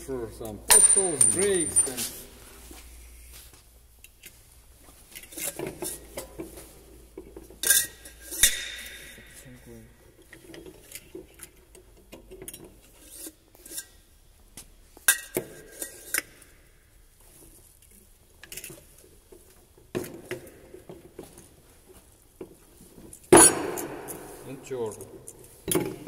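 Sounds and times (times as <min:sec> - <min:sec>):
metal clinks and scrapes: 0:00.7 - 0:03.4, 0:05.0 - 0:14.3, 0:15.0 - 0:22.0, 0:22.6 - 0:26.0
sharp metal knocks: 0:08.4 - 0:09.5, 0:23.3 - 0:24.5.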